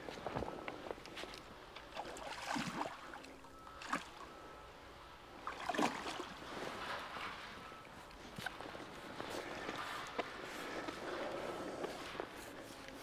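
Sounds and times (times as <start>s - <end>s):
river water running: 1.7s - 4.3s, 5.2s - 7.5s
close splashing noises: 1.9s - 4.2s, 5.4s - 7.4s.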